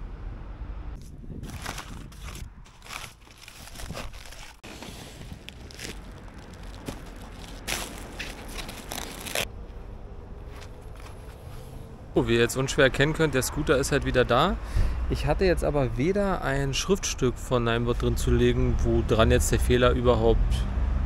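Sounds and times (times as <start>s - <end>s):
packing paper rustling and crackling: 1.4s - 9.5s
plastic wrapping rustling: 1.4s - 9.5s.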